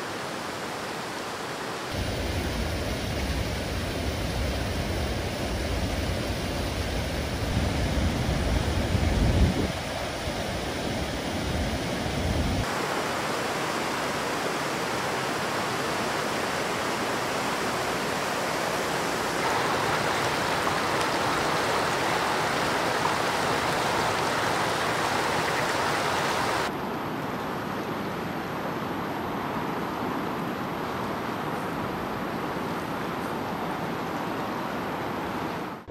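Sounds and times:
river rushing over stones: 11.9s - 26.7s.

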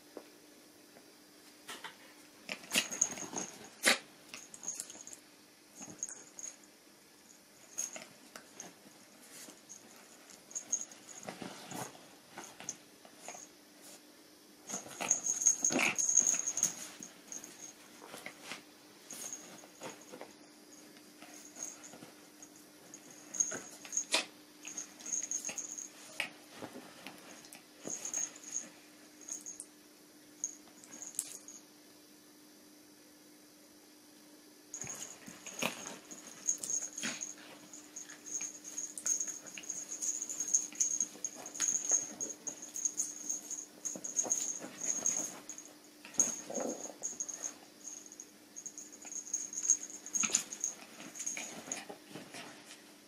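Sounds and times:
dogs play-fighting: 2.5s - 5.2s, 7.7s - 13.5s, 14.7s - 20.3s, 21.2s - 28.7s, 34.8s - 52.8s
soft scuffling on sofa: 34.8s - 52.8s.

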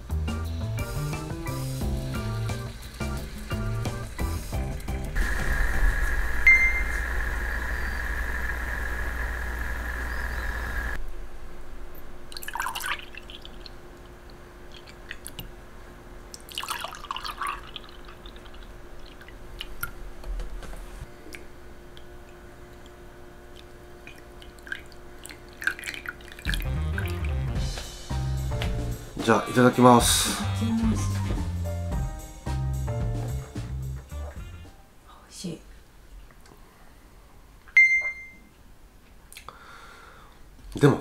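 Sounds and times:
steady hiss: 0.0s - 11.0s
coffee trickling into mug: 12.3s - 13.8s, 16.4s - 19.8s, 22.3s - 27.5s
milk splashing into mugs: 16.4s - 20.0s, 23.5s - 27.6s.

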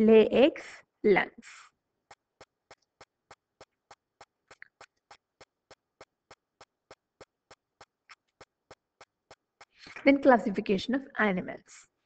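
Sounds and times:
faint regular ticking: 2.0s - 10.0s.

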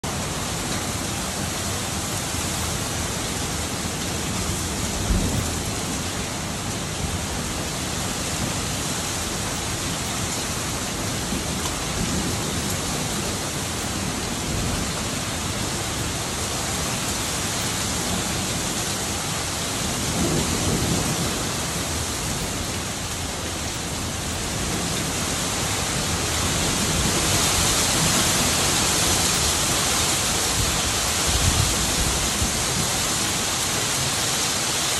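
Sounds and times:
heavy rain hissing: 0.1s - 34.9s
low rumble of thunder: 4.2s - 16.1s, 17.9s - 33.4s.

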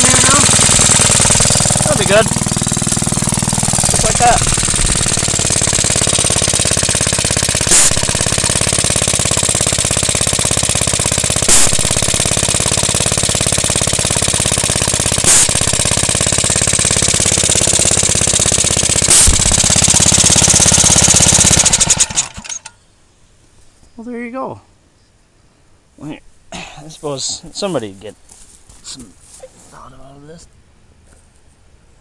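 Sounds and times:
short sharp burst: 0.0s - 10.2s, 11.0s - 22.7s
single-cylinder engine running: 0.0s - 22.8s.

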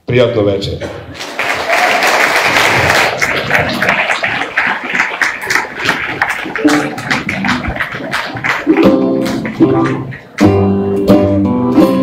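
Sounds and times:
crowd voices: 0.8s - 11.1s
audience applauding: 1.1s - 10.8s
plucked string instrument: 6.6s - 12.0s.

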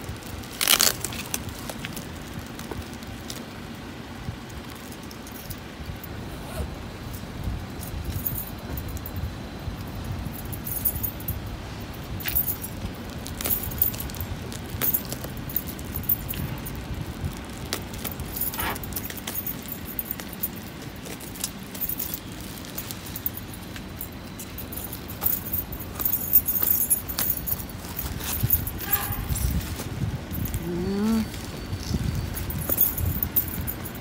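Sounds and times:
plastic and paper crinkling: 0.0s - 3.5s, 12.3s - 34.0s
low steady rumble: 0.0s - 34.0s.

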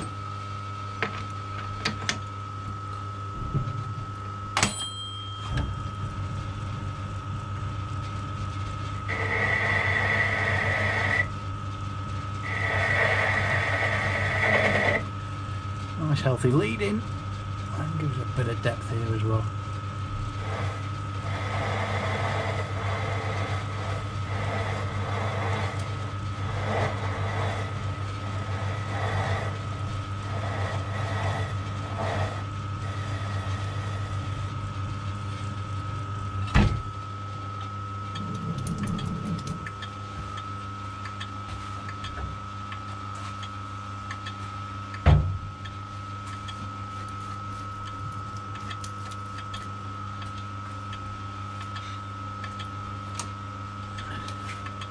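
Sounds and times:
lathe motor hum and whine: 0.0s - 4.6s, 5.5s - 54.9s
tool cutting metal bar: 9.1s - 11.3s, 12.5s - 15.0s, 20.5s - 27.8s.

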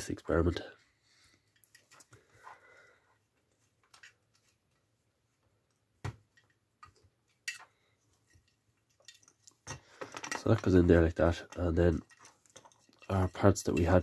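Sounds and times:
plastic parts clicking and knocking: 3.8s - 4.5s, 6.0s - 14.0s.

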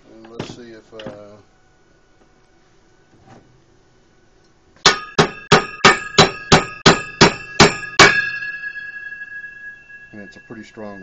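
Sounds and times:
hammer striking metal fin: 4.8s - 11.0s
metal fin ringing: 4.8s - 11.0s.

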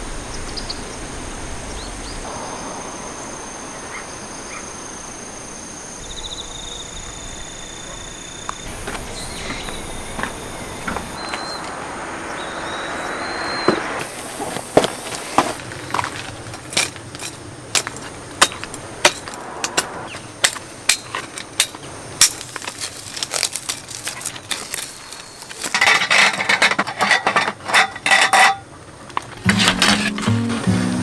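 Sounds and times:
background music: 29.5s - 31.0s.

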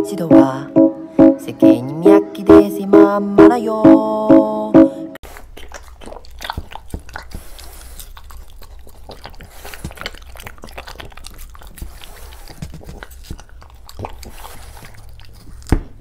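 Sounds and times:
dog chewing watermelon: 5.2s - 16.0s.

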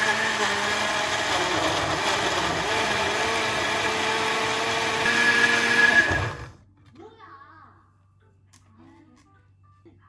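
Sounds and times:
blender running: 0.0s - 6.6s.

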